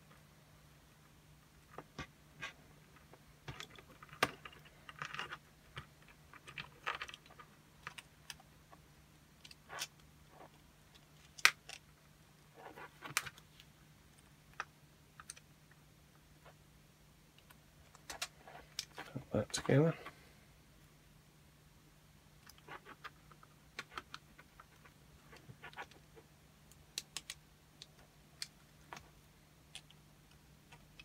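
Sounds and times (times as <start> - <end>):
light clicks and taps of plastic parts: 26.6 - 31.0.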